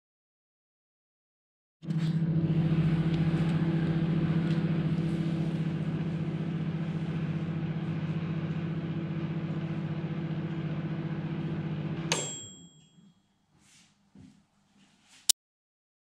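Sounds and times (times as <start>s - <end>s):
microwave oven humming: 1.8s - 13.0s
microwave click: 8.4s - 12.8s
timer bell ding: 12.1s - 13.2s.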